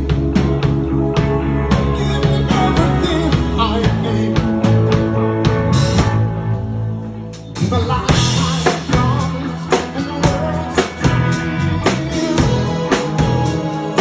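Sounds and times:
drums beating: 0.0s - 6.5s, 7.4s - 14.0s
rock band playing: 0.0s - 14.0s
man singing: 1.4s - 5.5s, 7.5s - 14.0s.

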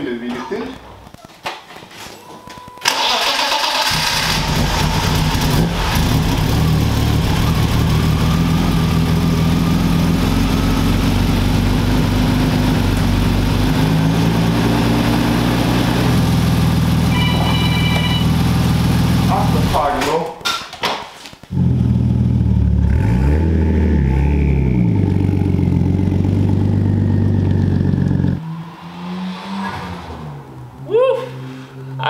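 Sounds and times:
car starter cranking: 2.8s - 5.3s
car engine idling: 3.7s - 19.7s, 24.6s - 28.4s.

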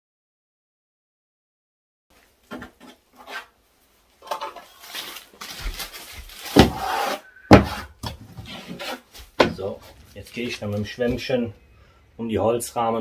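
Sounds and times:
scraping and rubbing: 2.6s - 3.6s, 4.2s - 11.2s.

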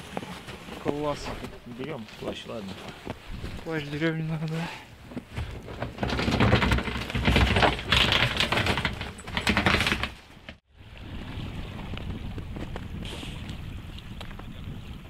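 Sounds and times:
snow and ice crunching: 0.0s - 6.2s.

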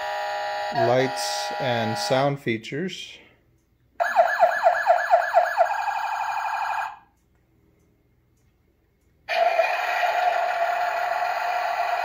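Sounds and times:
toy electronic siren wailing: 4.0s - 7.0s, 9.3s - 12.0s.

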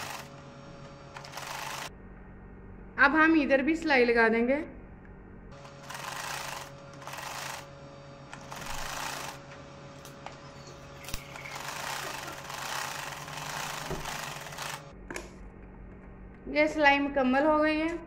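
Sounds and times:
sewing machine stitching: 0.0s - 0.3s, 1.2s - 1.9s, 5.6s - 7.7s, 8.4s - 9.4s, 10.6s - 14.9s
steady hum: 0.0s - 17.2s.

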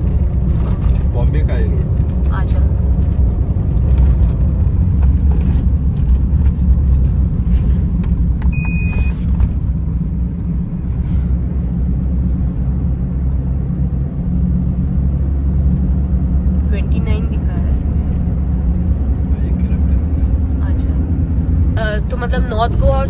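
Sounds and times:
car driving rumble: 0.0s - 23.0s
short electronic beep: 8.5s - 9.2s.

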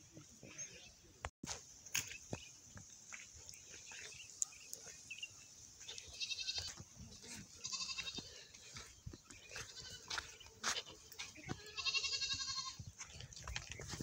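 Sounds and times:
goat bleating: 6.0s - 8.4s, 9.6s - 12.8s.

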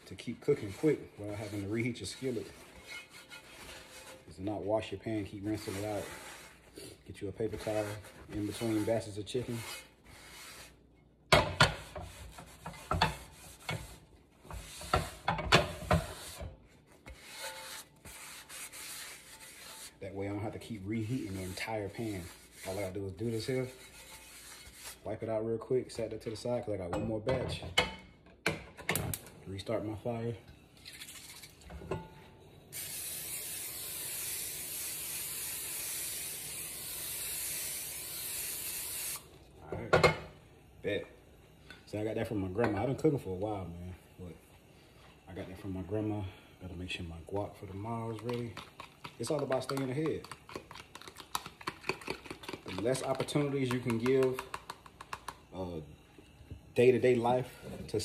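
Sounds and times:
paper towel scraping a skillet: 0.0s - 10.8s, 11.6s - 25.3s.

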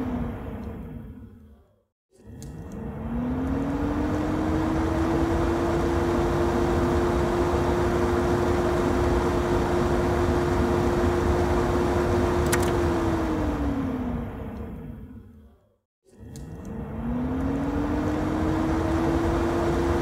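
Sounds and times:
exhaust fan running: 2.6s - 15.0s, 16.6s - 20.0s.

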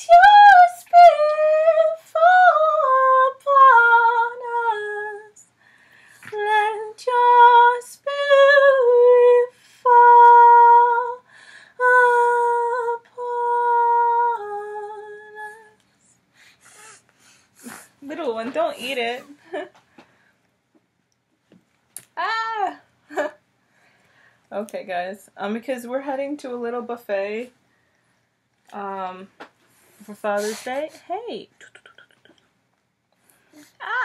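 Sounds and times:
woman singing without words: 0.0s - 5.6s, 6.2s - 15.8s, 33.8s - 34.0s.

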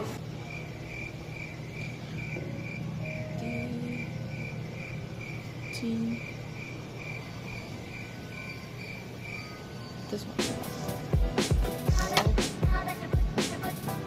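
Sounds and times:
low steady hum: 0.0s - 10.4s
cricket chirping: 0.0s - 12.2s.

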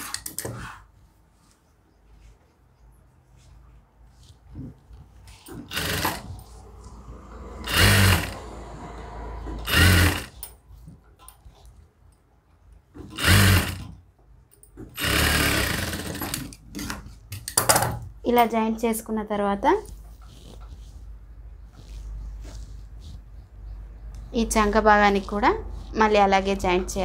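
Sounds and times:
sewing machine stitching: 5.3s - 6.8s, 7.4s - 10.8s, 12.9s - 14.0s, 14.8s - 17.2s.

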